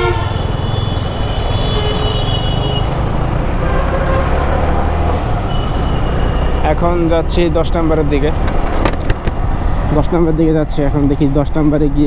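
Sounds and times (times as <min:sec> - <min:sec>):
vehicle horn: 0:00.0 - 0:03.0, 0:03.6 - 0:04.6, 0:05.4 - 0:06.7
motorcycle engine: 0:00.0 - 0:09.6
road noise: 0:00.0 - 0:12.0.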